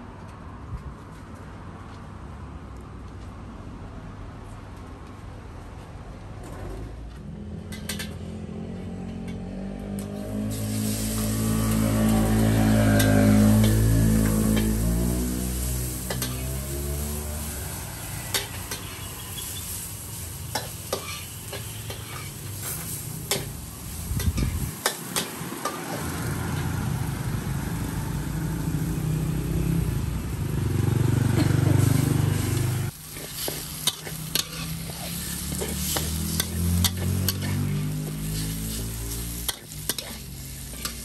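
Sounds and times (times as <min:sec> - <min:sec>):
metal spatula scraping wok: 0:10.2 - 0:26.2, 0:31.7 - 0:41.0
food sizzling in oil: 0:10.4 - 0:30.8, 0:31.4 - 0:41.0.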